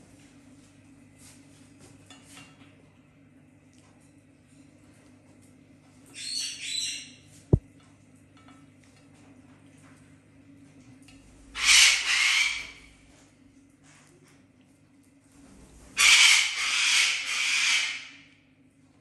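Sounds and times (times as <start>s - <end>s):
parrot screeching: 11.6s - 12.8s, 16.0s - 18.2s.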